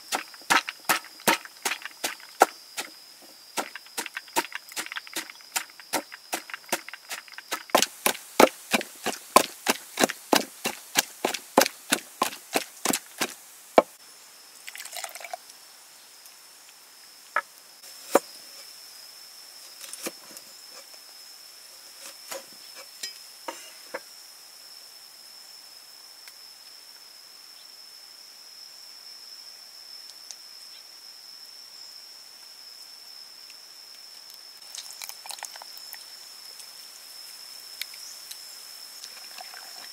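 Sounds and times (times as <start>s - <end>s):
pestle pounding in wooden mortar: 0.0s - 2.9s, 3.6s - 13.9s.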